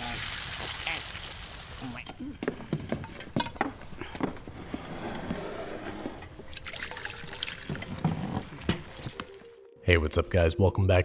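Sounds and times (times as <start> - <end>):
bacon and eggs sizzling in pan: 0.0 - 2.0.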